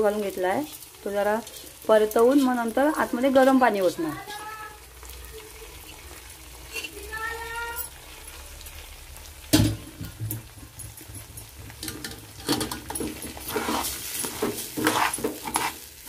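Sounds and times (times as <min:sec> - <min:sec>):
rice and spices frying in oil: 0:00.0 - 0:16.0
stirring in pot: 0:00.6 - 0:04.8, 0:10.9 - 0:16.0.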